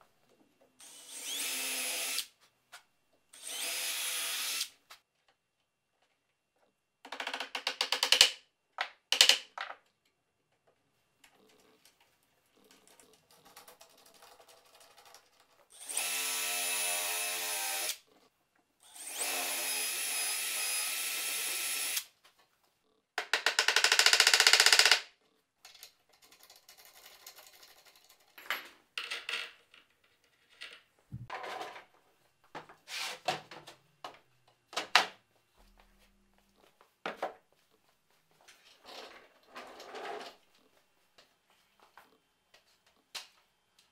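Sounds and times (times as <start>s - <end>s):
cordless drill driving screws: 0.8s - 2.3s, 3.4s - 4.7s, 15.8s - 18.0s, 18.8s - 22.1s.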